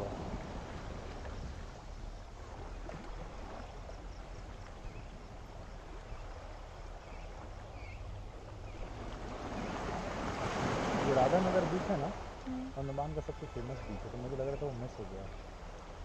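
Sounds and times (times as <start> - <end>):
sea waves washing on shore: 0.0 - 16.0
wind rumble on microphone: 0.0 - 16.0
faint bird chirps: 6.0 - 8.9.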